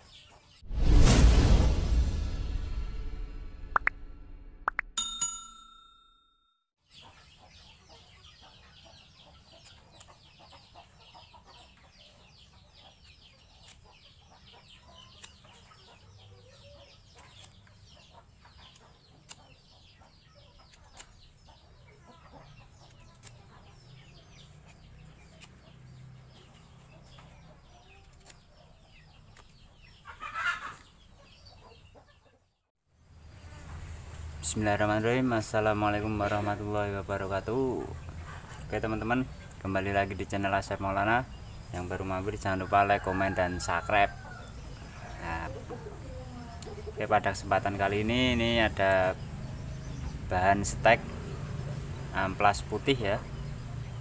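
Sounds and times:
chickens clucking: 6.9 - 32.6, 35.1 - 53.9
rooster crowing: 42.6 - 45.2.

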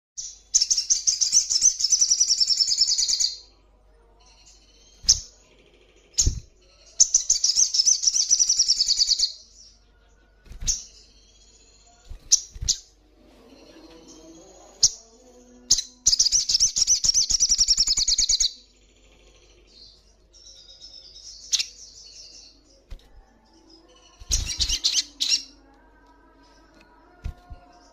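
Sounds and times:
sunbird trilling song: 4.3 - 9.8, 10.4 - 25.9.

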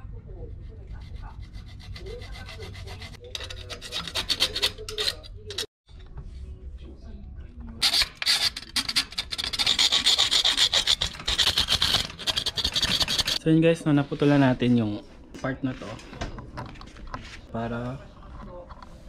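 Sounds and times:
hacksaw sawing metal tube: 1.4 - 5.7, 7.8 - 13.4.

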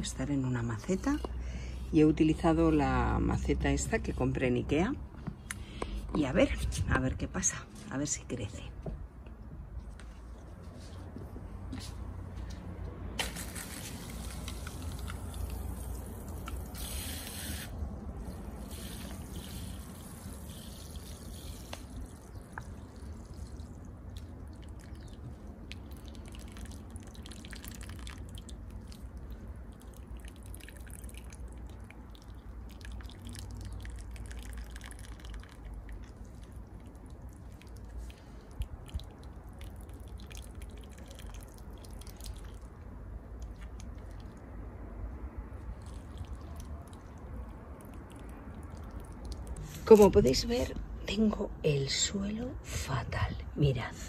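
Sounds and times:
hose spraying onto soil: 13.2 - 22.0
water dripping: 18.2 - 44.5, 45.7 - 49.7.

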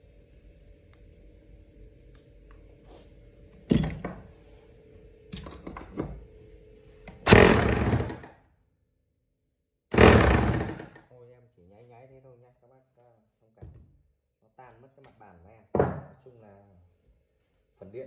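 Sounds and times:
electric demolition hammer bursts: 7.2 - 8.3, 9.9 - 11.0.

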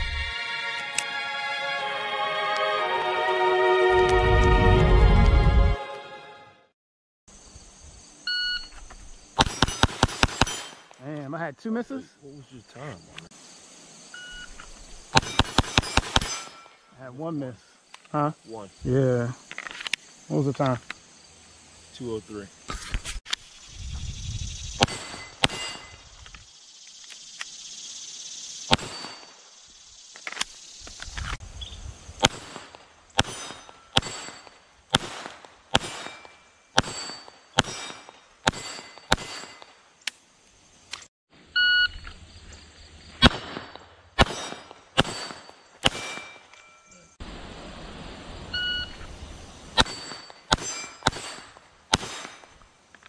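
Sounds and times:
pistol shots: 9.4 - 10.9, 15.2 - 16.6, 24.8 - 25.9, 28.7 - 29.3, 32.2 - 39.6, 43.2 - 46.4, 49.8 - 52.5
steel targets ringing: 15.2 - 16.9, 24.8 - 26.0, 28.8 - 29.4, 33.2 - 34.6, 35.8 - 39.8, 43.2 - 47.2, 49.8 - 52.6.

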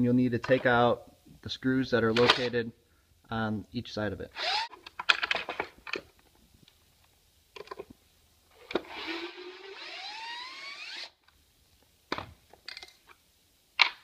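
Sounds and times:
cordless drill motor whining: 4.4 - 4.7, 8.7 - 11.2.

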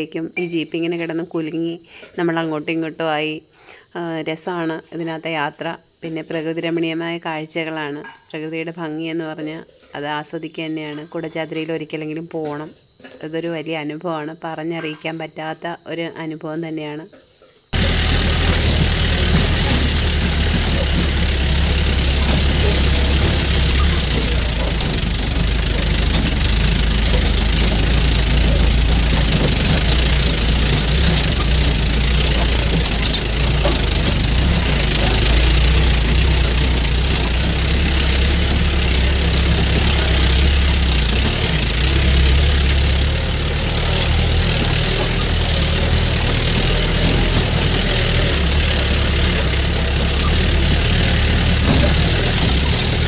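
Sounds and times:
tyres on rocky dirt track: 17.7 - 53.0
car engine running: 17.8 - 53.0.

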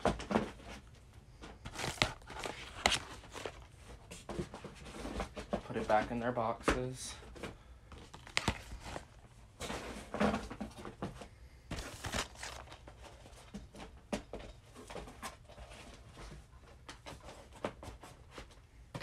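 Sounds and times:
rustling: 0.3 - 5.4, 7.9 - 11.1, 11.7 - 13.5
plastic cases clicking together: 1.7 - 3.6, 7.9 - 9.2, 11.8 - 12.8.

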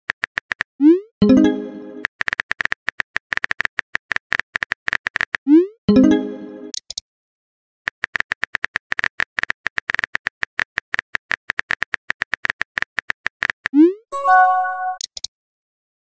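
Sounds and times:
message chime: 1.2 - 2.0, 5.9 - 6.7, 14.1 - 15.0.

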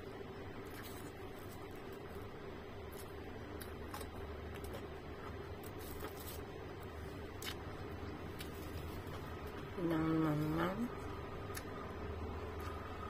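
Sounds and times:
low room hum: 0.0 - 13.0
person chewing: 2.9 - 6.4, 7.3 - 9.6, 11.5 - 11.8, 12.4 - 13.0.

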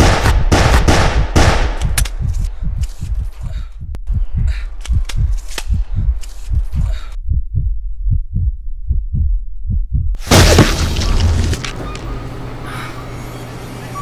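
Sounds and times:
heartbeat thumps: 0.0 - 10.2.

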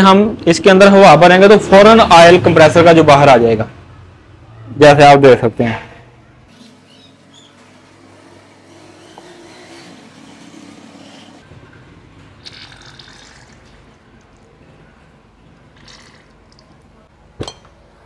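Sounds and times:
oil stream into container: 12.4 - 14.6, 15.6 - 17.0.

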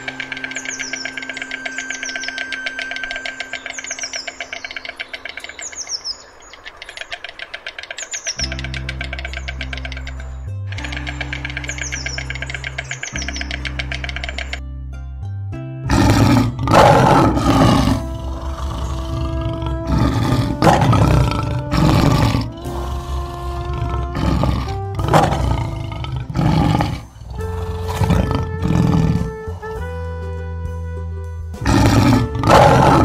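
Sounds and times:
background music of held notes: 0.0 - 5.9, 8.2 - 33.0
lion roaring: 15.9 - 29.7, 31.6 - 33.0.

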